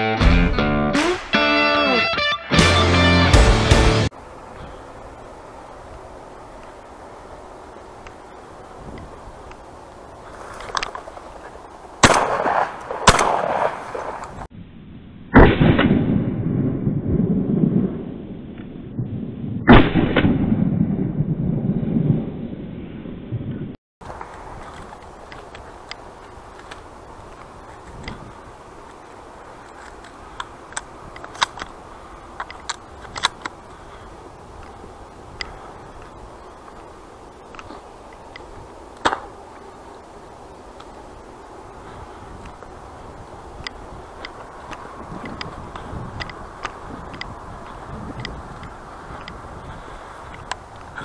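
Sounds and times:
steady hiss: 3.4 - 14.5, 24.0 - 51.0
shotgun shots: 12.0 - 14.2.

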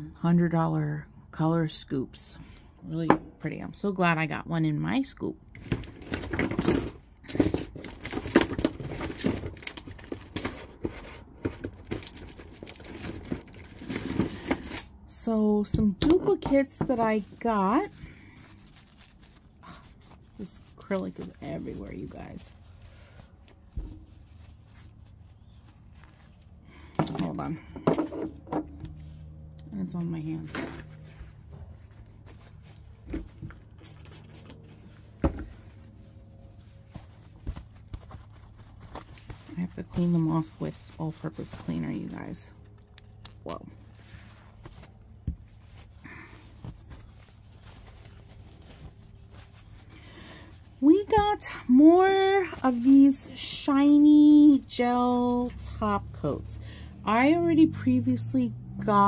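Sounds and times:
low steady hum: 0.0 - 59.0
packaging rustling and crinkling: 5.6 - 15.0, 16.3 - 27.4, 30.5 - 53.2.

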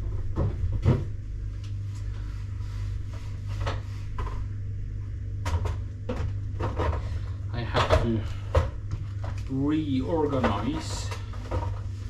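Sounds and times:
items knocking on fridge shelves: 0.0 - 1.2, 10.0 - 12.0
steady low hum: 0.0 - 12.0.

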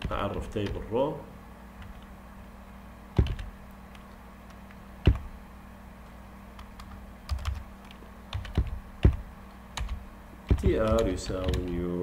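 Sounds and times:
faint steady hum: 0.0 - 12.0
keyboard keystrokes: 3.2 - 5.3, 6.6 - 9.2, 9.8 - 11.8.

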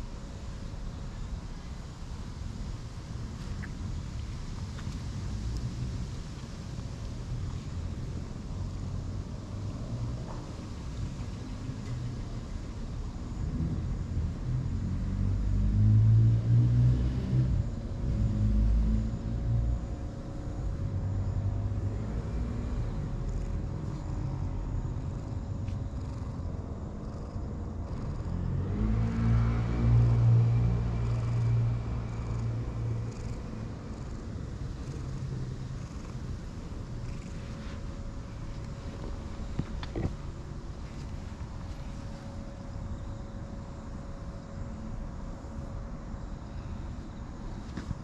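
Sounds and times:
cat purring: 21.8 - 42.2.

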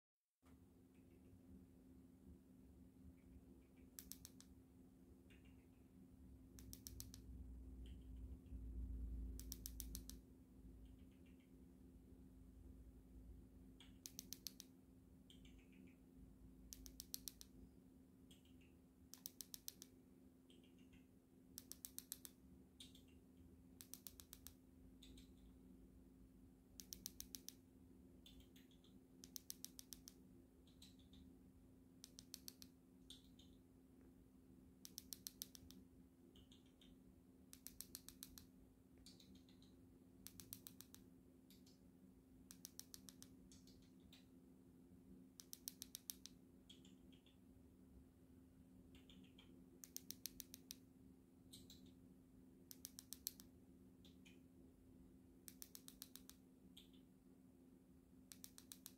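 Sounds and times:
low steady hum: 0.4 - 58.9
cockatiel rapid soft clicks: 3.2 - 4.6, 5.2 - 5.9, 6.5 - 8.6, 9.3 - 11.6, 13.8 - 16.0, 16.7 - 17.6, 18.3 - 25.5, 26.8 - 31.3, 32.0 - 33.6, 34.8 - 41.8, 42.5 - 44.4, 45.4 - 47.4, 48.9 - 50.9, 52.7 - 54.4, 55.4 - 57.0, 58.3 - 58.9.

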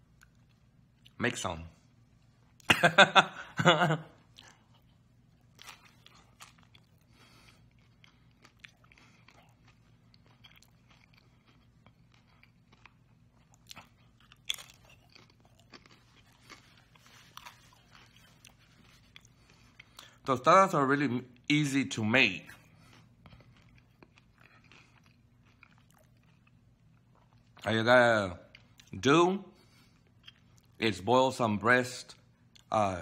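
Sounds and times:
person chewing crunchy food: 4.2 - 20.2, 22.4 - 27.7, 29.6 - 30.8.

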